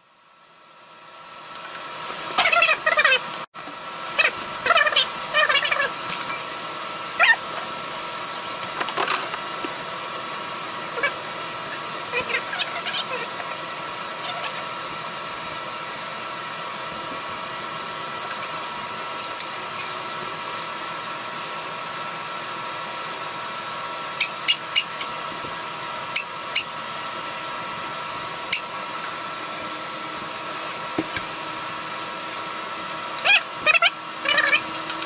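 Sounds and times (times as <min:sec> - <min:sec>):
constant hum: 0:00.0 - 0:35.0.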